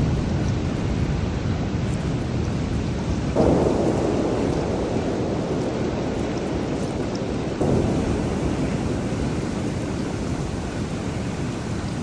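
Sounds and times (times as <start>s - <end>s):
heavy rain: 0.0s - 12.0s
thunder roll: 3.3s - 12.0s
low rumble: 3.4s - 12.0s.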